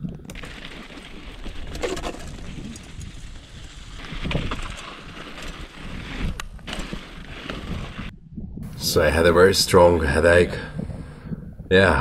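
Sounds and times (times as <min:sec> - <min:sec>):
bike knocks and rattles: 0:00.0 - 0:08.1
bike tyres crunching on gravel: 0:00.0 - 0:08.1.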